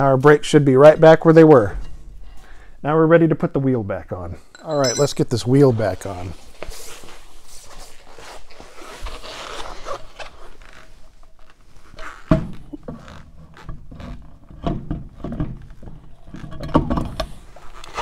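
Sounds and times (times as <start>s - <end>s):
metal clinks and knocks: 4.5s - 5.4s.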